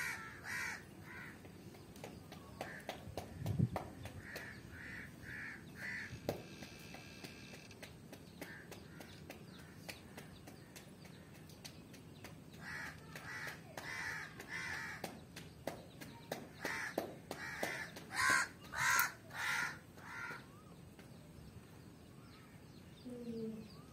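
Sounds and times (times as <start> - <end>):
crow cawing: 0.0 - 1.4, 4.2 - 6.2, 12.6 - 15.0, 16.6 - 20.5.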